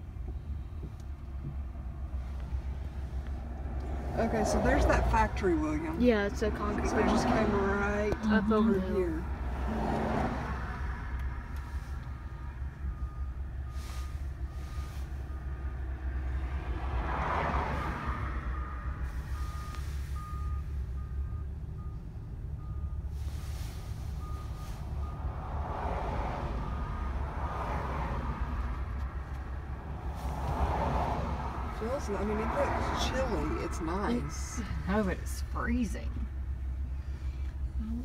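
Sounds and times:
low road rumble: 0:00.0 - 0:38.0
passing traffic: 0:00.0 - 0:38.0
vehicle backup alarm beeping: 0:11.4 - 0:16.4, 0:17.8 - 0:25.7.

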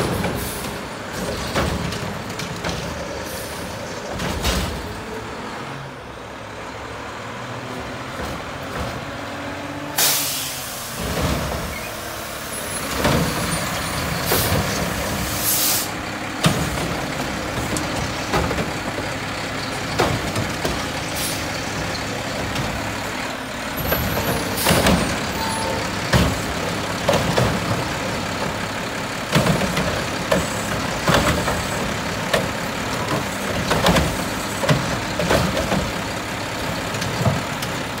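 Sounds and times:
cart banging into hopper: 0:00.0 - 0:03.0, 0:04.0 - 0:05.0, 0:23.8 - 0:28.6
garbage truck running: 0:00.0 - 0:38.0.

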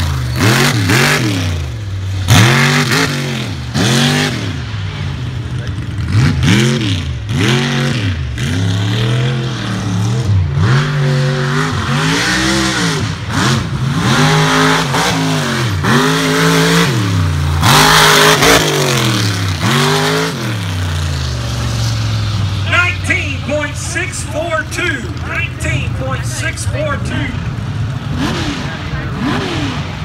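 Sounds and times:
truck engine revving: 0:00.0 - 0:30.0.

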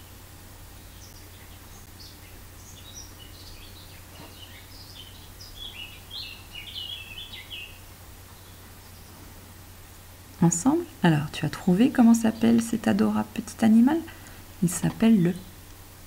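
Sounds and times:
birds chirping: 0:00.0 - 0:09.3
faint low hum: 0:00.0 - 0:16.0.

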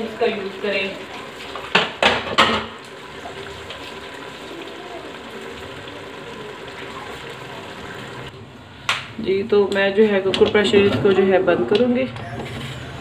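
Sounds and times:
vegetables sizzling in a pot: 0:00.0 - 0:08.4.

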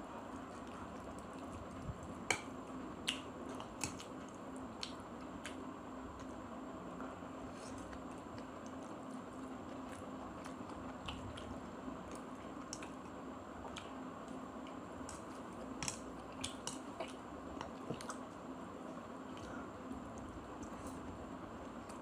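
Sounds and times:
steady background hum: 0:00.0 - 0:22.0
person chewing noodles: 0:07.5 - 0:22.0
wet mouth clicks and smacks: 0:15.1 - 0:16.9.

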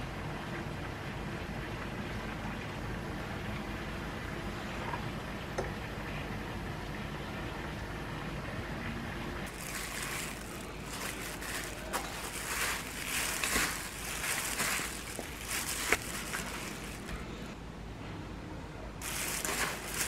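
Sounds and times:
wet rustling of noodles tossed in bowl: 0:09.5 - 0:17.2, 0:19.0 - 0:20.0.

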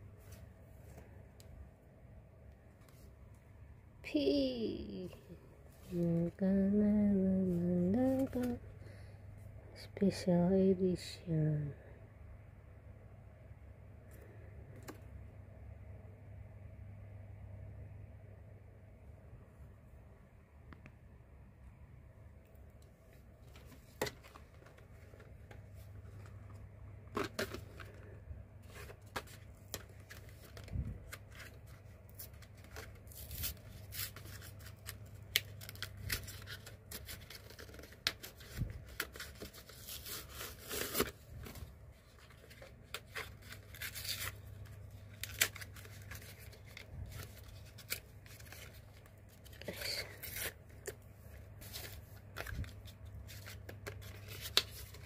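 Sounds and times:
low steady hum: 0:00.0 - 0:55.0
blister pack rustling and tearing: 0:27.1 - 0:55.0.

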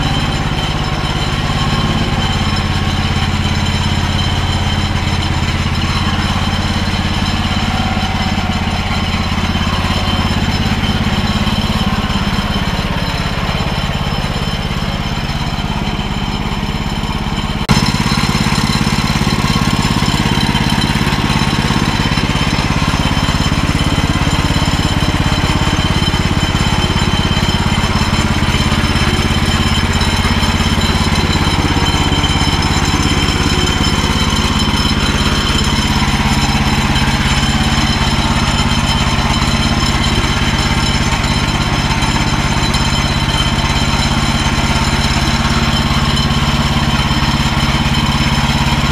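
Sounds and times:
sawmill petrol engine running: 0:00.0 - 0:48.9.

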